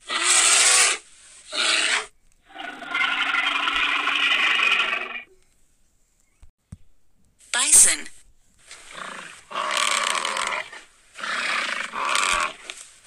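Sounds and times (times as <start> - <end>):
bear growling: 0.0 - 5.3, 8.7 - 12.8.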